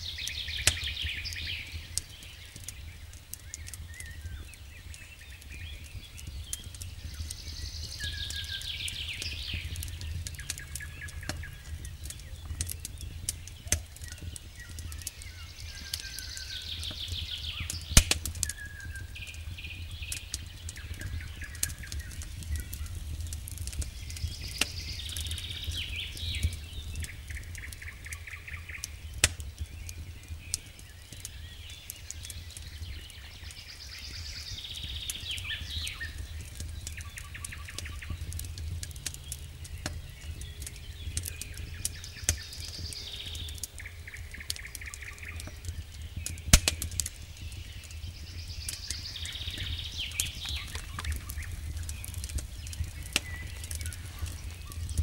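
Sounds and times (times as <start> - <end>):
campfire crackling and popping: 0.0 - 55.0
songbird singing with trill: 0.0 - 55.0.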